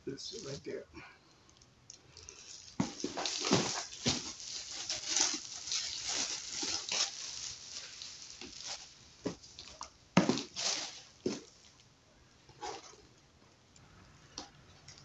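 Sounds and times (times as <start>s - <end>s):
plastic wrap crinkling: 1.9s - 11.9s.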